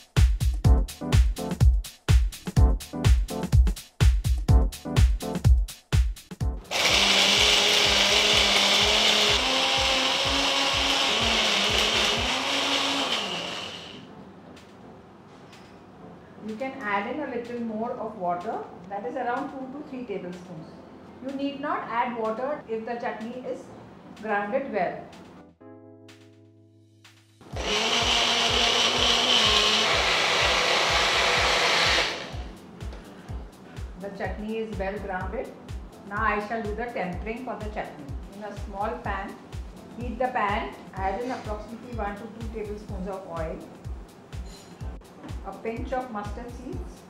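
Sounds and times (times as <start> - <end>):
music beat thumping: 0.0 - 6.7, 27.0 - 34.4
mixer grinder motor running: 6.6 - 14.1, 27.6 - 32.5.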